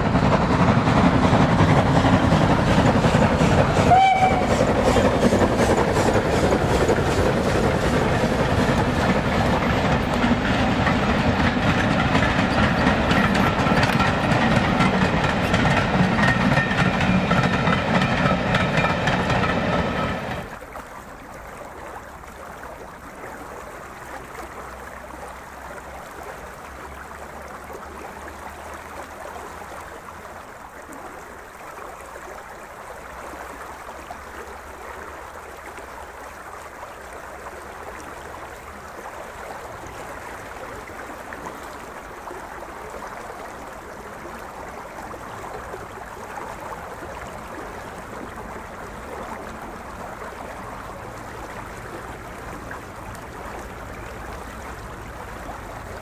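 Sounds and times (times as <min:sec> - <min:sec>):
river water running: 0:00.0 - 0:56.0.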